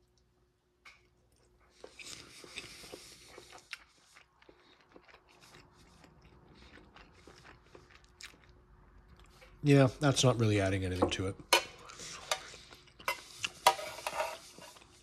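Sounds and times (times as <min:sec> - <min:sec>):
person chewing food: 0:00.9 - 0:09.6, 0:11.7 - 0:15.0.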